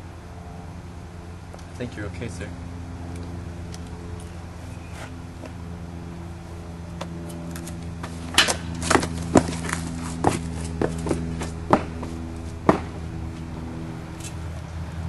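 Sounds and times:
low mechanical hum: 0.0s - 15.0s
sharp knocks: 8.3s - 13.1s.

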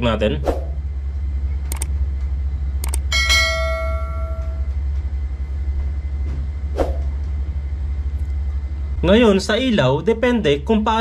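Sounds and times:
steady low hum: 0.0s - 11.0s
quick clicks: 1.7s - 1.9s, 2.8s - 3.1s
metallic strike ringing like bell: 3.1s - 4.7s.

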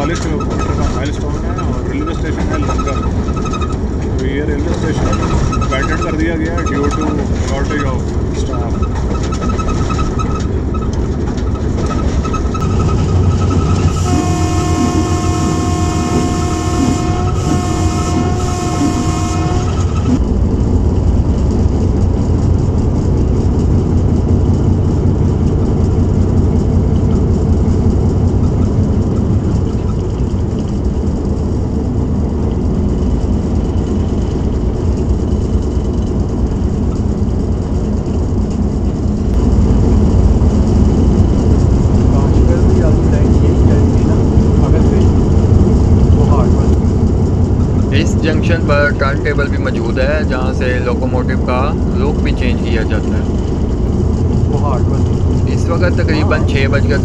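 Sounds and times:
locomotive engine and wheel rumble: 0.0s - 57.0s
locomotive horn blasts: 13.6s - 20.2s.

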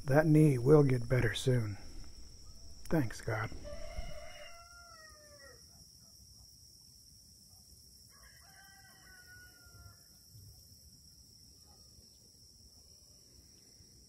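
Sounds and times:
high insect trill: 0.0s - 5.8s
distant rooster crowing: 1.8s - 5.6s, 8.1s - 10.2s.

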